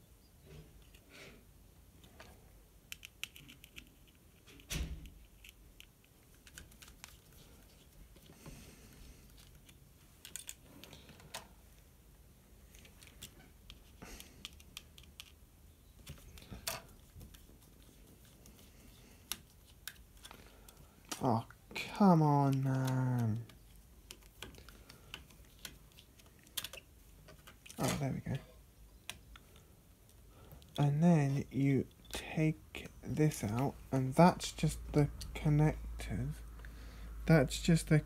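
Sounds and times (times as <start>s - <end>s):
plastic parts being handled: 2.0s - 11.9s, 12.5s - 28.4s.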